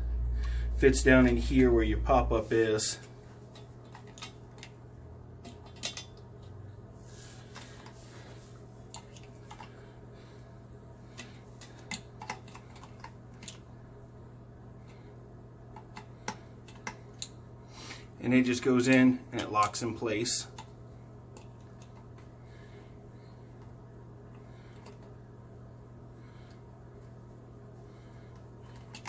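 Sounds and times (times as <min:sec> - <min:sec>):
steady low hum: 0:00.0 - 0:29.0
plastic and metal parts clicking: 0:05.4 - 0:06.2.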